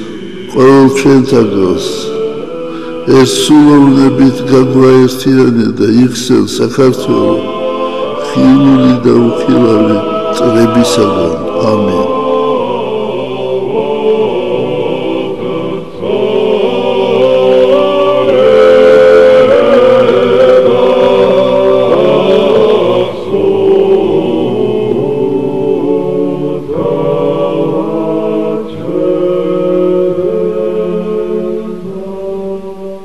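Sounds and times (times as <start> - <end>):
choir chanting in harmony: 0.0 - 33.0.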